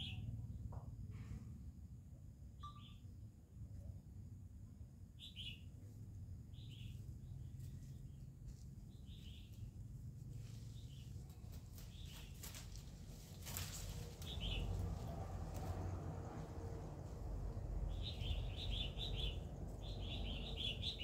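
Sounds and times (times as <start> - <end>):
small bird chirping: 0.0 - 0.7, 2.6 - 3.2, 5.2 - 10.0, 10.6 - 12.8, 14.2 - 14.8, 17.8 - 21.0
low background hum: 0.0 - 21.0
leaves and branches rustling: 7.4 - 18.4.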